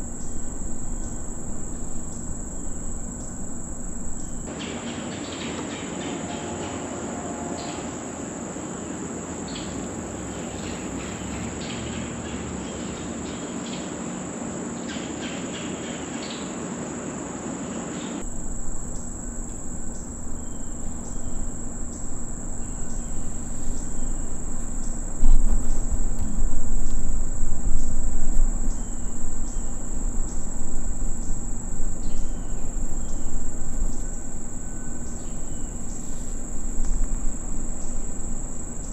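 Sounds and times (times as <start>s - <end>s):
low rumble: 0.0s - 4.5s, 18.2s - 38.9s
insects chorus: 0.0s - 4.6s, 6.0s - 38.9s.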